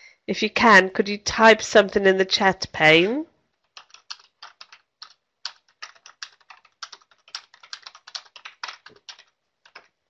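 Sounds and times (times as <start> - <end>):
typing on computer keyboard: 3.6 - 10.0.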